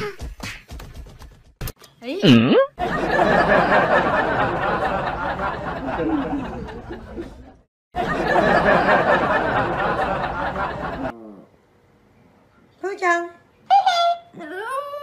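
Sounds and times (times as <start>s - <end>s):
people laughing: 2.8s - 11.1s.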